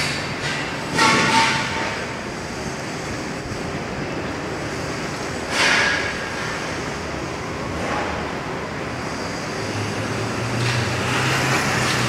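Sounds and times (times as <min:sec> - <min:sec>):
hum of traffic: 0:00.0 - 0:12.0
engine approaching: 0:06.4 - 0:12.0.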